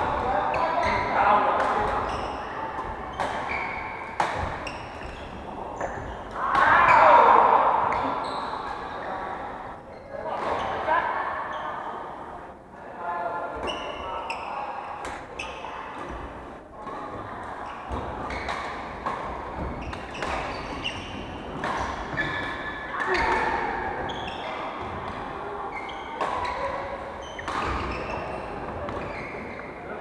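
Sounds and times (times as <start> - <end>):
sneaker squeaks on wooden floor: 1.8 - 7.2, 7.9 - 9.1, 13.6 - 14.6, 17.7 - 18.6, 19.5 - 24.9, 25.7 - 29.8
racket striking shuttlecock: 3.2 - 5.2.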